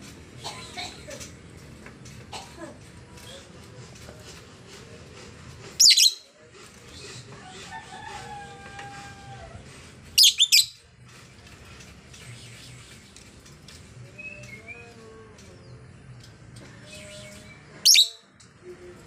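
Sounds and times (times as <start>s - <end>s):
parrot shrill calls: 10.2s - 10.8s.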